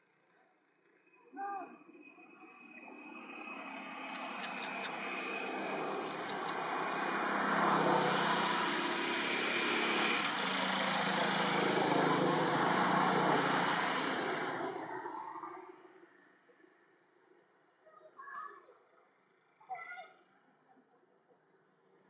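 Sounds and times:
vehicle passing by: 2.7s - 15.6s.

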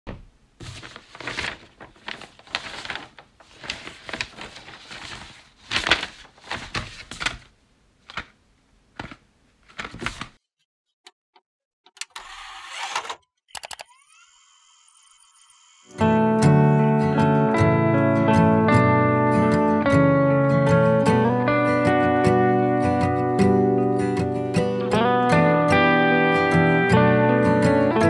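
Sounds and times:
paper rustling and sliding: 0.6s - 8.3s, 9.0s - 10.4s, 12.2s - 13.2s.

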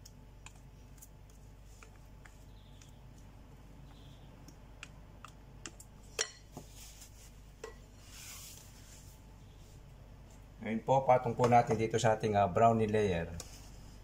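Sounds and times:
paper towel rustling: 6.6s - 7.4s, 8.0s - 9.2s.

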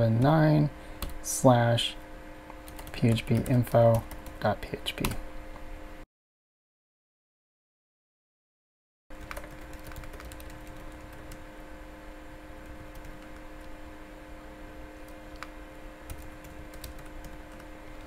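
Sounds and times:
background hum: 0.0s - 6.0s, 9.1s - 18.0s
keyboard keys clicking: 9.2s - 11.4s.

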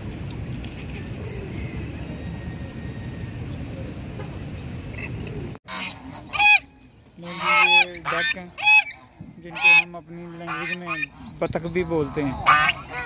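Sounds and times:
geese honking: 5.7s - 13.0s.

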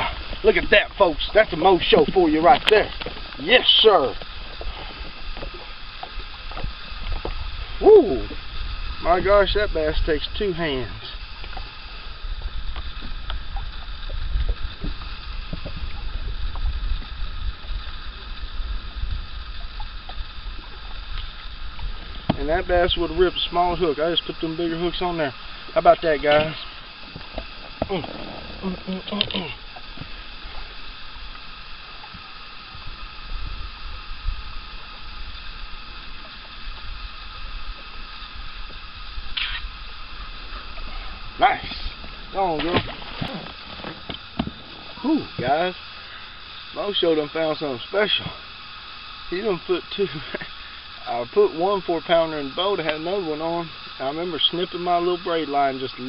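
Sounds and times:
wind rumble on microphone: 0.0s - 25.1s
steady hiss: 0.0s - 56.0s
water lapping around boat: 0.0s - 56.0s
water sloshing: 19.6s - 31.0s, 40.3s - 46.2s.

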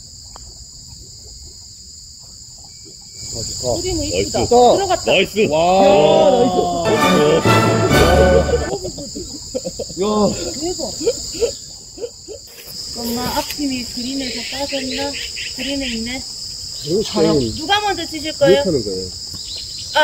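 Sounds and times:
insects chirring: 0.0s - 20.0s
pitched sound effect: 5.8s - 8.7s.

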